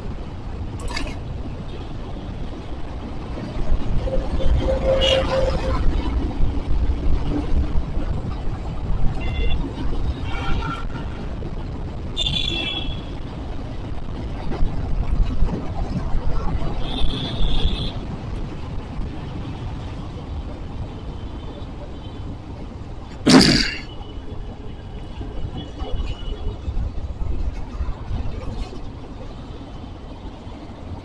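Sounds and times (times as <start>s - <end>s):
road traffic rumble: 0.0s - 31.0s
wind: 0.0s - 31.0s
vehicle horn honks: 4.5s - 5.6s.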